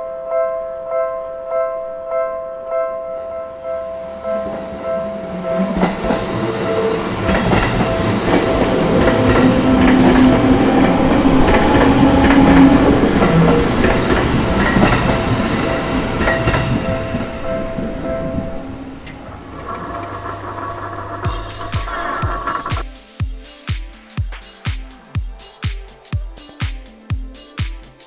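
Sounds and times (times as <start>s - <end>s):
crossing warning bell dinging: 1.7s - 20.5s
train wheels clattering over rails: 5.3s - 17.4s.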